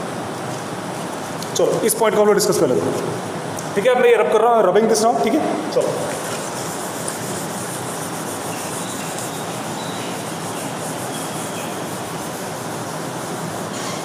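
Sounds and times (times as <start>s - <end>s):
eraser rubbing on whiteboard: 6.2s - 14.0s.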